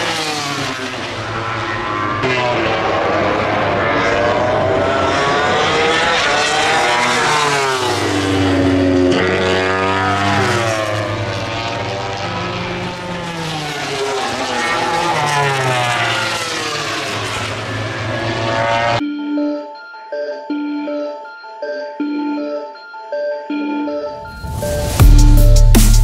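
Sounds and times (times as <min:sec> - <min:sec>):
racing motorcycle engines revving: 0:00.0 - 0:19.0.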